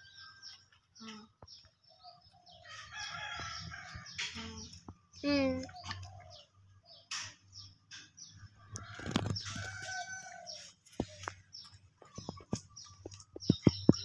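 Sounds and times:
chickens clucking: 0:00.0 - 0:14.0.

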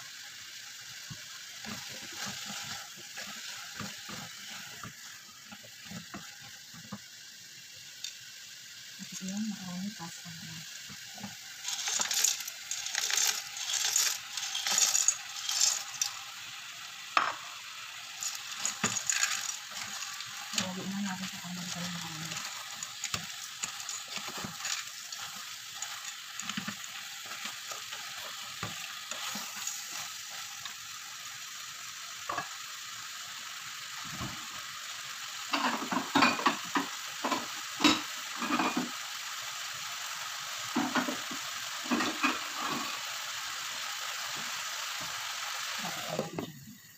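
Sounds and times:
vegetables sizzling in a pan: 0:00.0 - 0:46.9
wooden spoon scraping a pan: 0:01.6 - 0:05.0, 0:11.2 - 0:16.2, 0:18.2 - 0:30.4
dry pasta rattling into a pan: 0:11.6 - 0:30.9.

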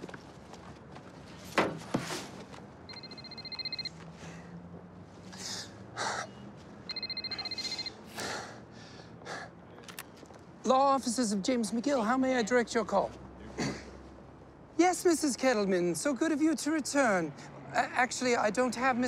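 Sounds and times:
mobile phone trilling ring: 0:02.9 - 0:03.9, 0:06.9 - 0:08.0.

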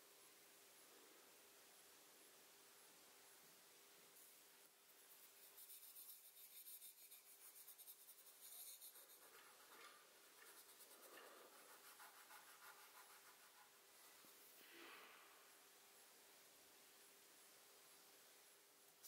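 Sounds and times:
fingertip rubbing paper: 0:05.0 - 0:13.8
pencil scribbling on paper: 0:05.0 - 0:13.8.

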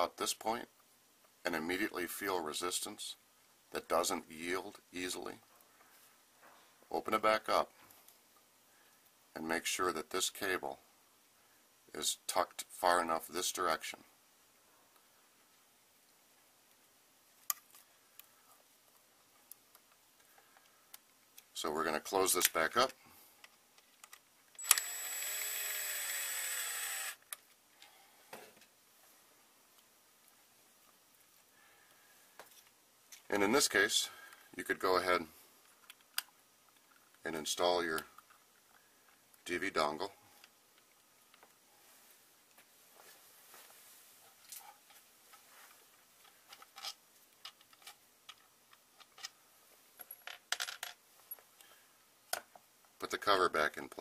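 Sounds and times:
cordless drill whining: 0:24.6 - 0:27.2
drill click: 0:24.6 - 0:27.3.

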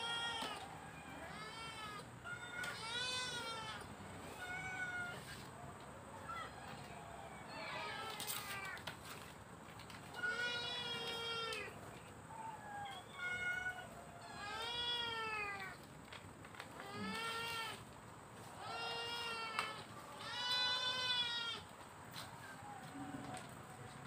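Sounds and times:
cats meowing: 0:00.0 - 0:05.5, 0:07.5 - 0:08.9, 0:10.1 - 0:15.9, 0:16.7 - 0:17.9, 0:18.5 - 0:21.7.

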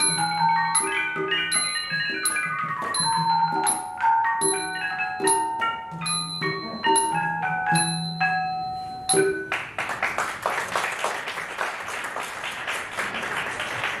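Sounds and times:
small tuned gongs struck with mallets: 0:00.0 - 0:09.5
audience applause: 0:09.5 - 0:14.0.

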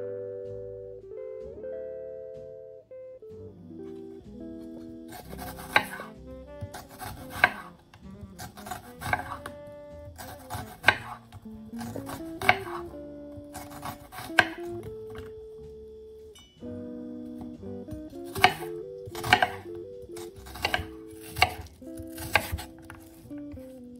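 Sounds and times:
knife slicing onion: 0:04.7 - 0:15.4, 0:17.4 - 0:23.8.

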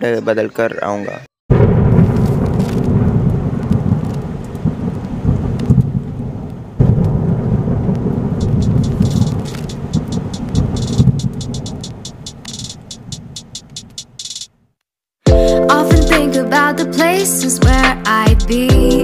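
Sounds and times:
thunder rumbling: 0:01.5 - 0:13.5
rain hiss: 0:02.6 - 0:13.9.

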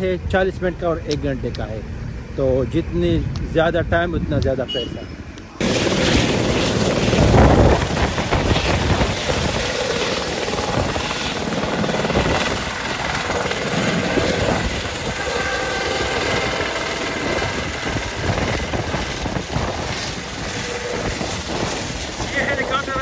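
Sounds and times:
helicopter engine and rotor: 0:05.6 - 0:23.0.

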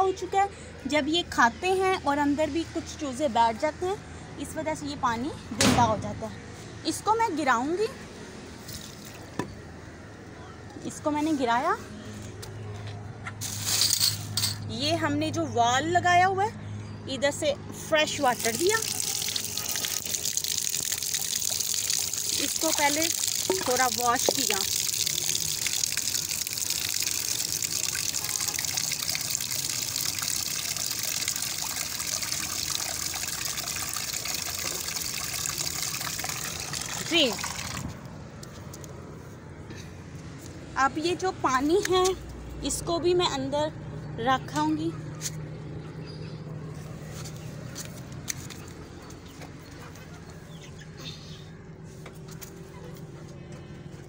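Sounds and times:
water gushing from a tap: 0:18.3 - 0:38.0
water splashing onto concrete: 0:18.3 - 0:38.0.

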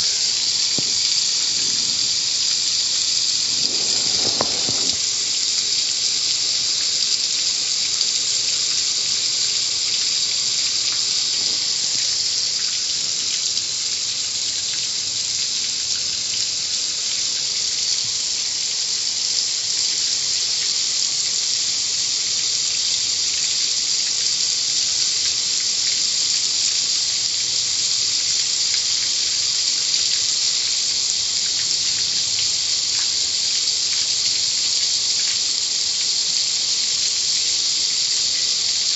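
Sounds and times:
water jets hissing: 0:00.0 - 0:38.9.

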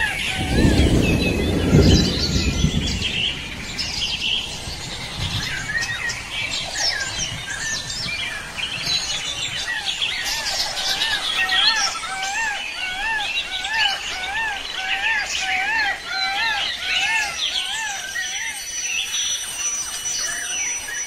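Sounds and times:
songbirds chirping: 0:00.0 - 0:21.0
low rumble: 0:00.2 - 0:08.2.

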